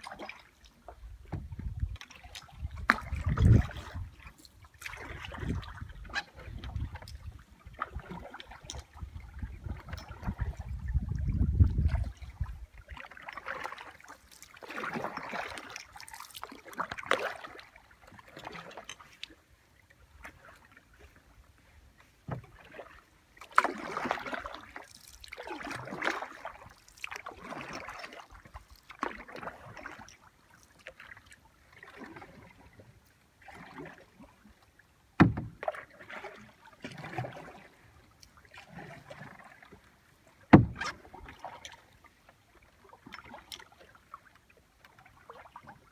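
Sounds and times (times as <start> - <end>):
kayak paddle strokes in water: 0.0 - 45.9
water splashes and drips: 0.0 - 45.9
sharp knocks: 35.2 - 35.6, 40.5 - 40.8.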